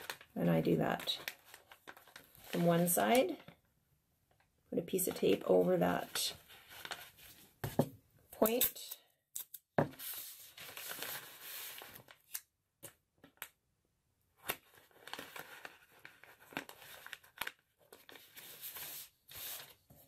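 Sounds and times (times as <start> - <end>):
paper bag crinkling: 0.0 - 3.2, 10.0 - 12.3.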